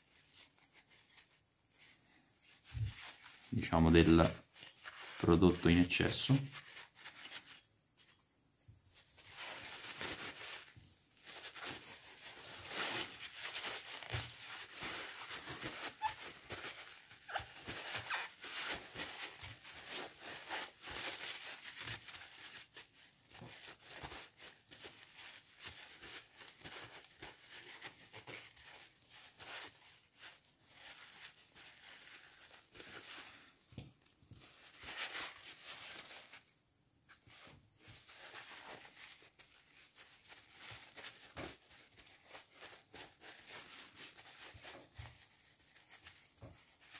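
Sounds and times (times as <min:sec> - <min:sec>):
paper towel rustling and crinkling: 0:00.0 - 0:46.9.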